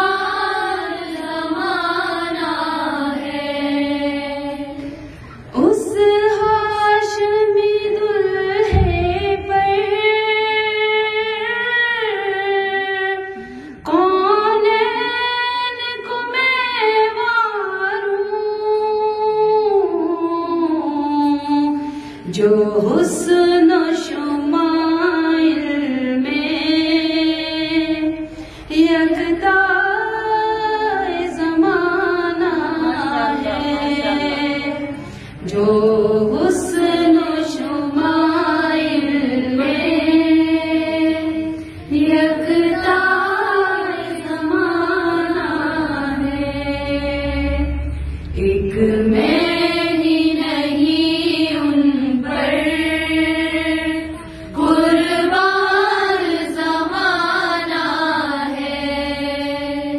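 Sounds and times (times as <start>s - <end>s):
woman singing unaccompanied: 5.6s - 47.8s, 48.4s - 59.9s
low thump: 8.6s - 10.0s.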